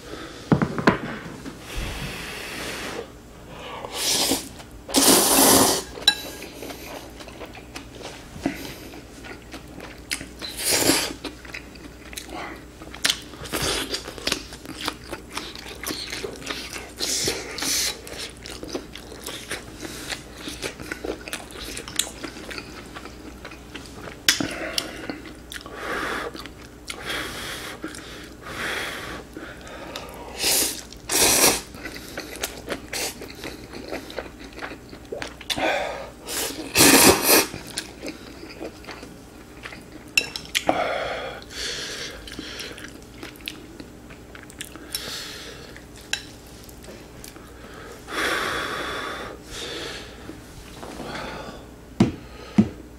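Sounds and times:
slurping noodles: 3.9s - 6.0s, 36.3s - 37.5s
chewing: 11.1s - 25.7s, 31.7s - 35.6s, 37.4s - 40.7s, 42.2s - 45.1s.

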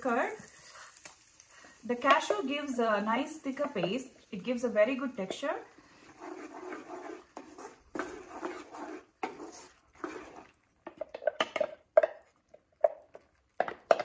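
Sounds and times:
wooden spatula scraping a pan: 5.1s - 14.0s.

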